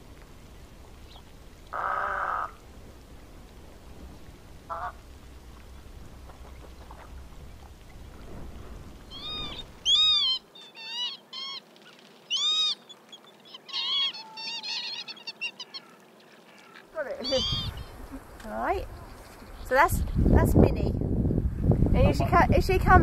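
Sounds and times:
faint low rumble: 0.0 - 10.2
short bird calls: 9.1 - 18.2.

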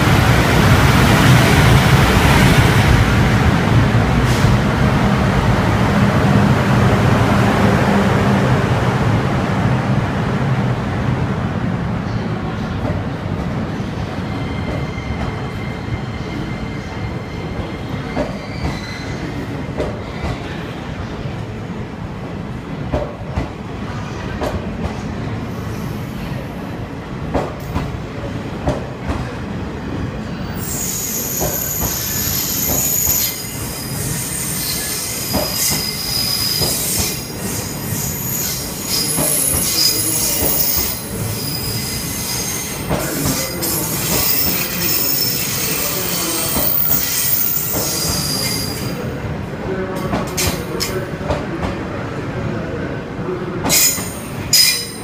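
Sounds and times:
train wheels rumbling over rail joints: 34.9 - 48.3.

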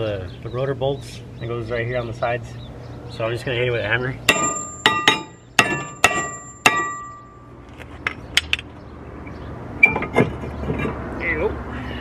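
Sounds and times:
hammer striking metal rotor: 4.3 - 7.3.

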